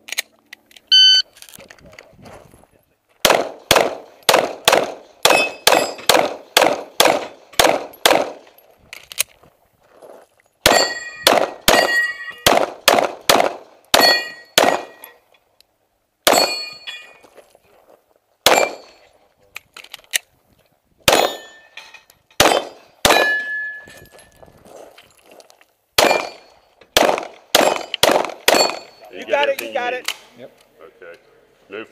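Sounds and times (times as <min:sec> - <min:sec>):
pistol shots: 0:03.2 - 0:08.5, 0:10.6 - 0:15.1, 0:18.4 - 0:19.0, 0:21.0 - 0:21.6, 0:22.4 - 0:23.6, 0:26.0 - 0:29.0
bullets ringing on steel plates: 0:05.3 - 0:06.1, 0:10.6 - 0:12.5, 0:13.9 - 0:15.2, 0:16.3 - 0:17.2, 0:21.2 - 0:22.1, 0:23.1 - 0:24.3, 0:27.6 - 0:29.2.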